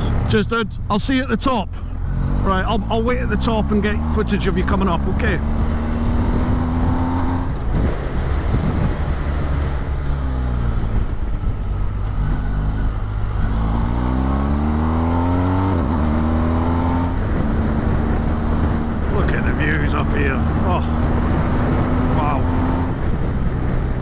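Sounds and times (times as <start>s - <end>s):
motorcycle engine: 0.0s - 24.0s
wind rush on microphone: 5.4s - 14.1s, 14.8s - 24.0s.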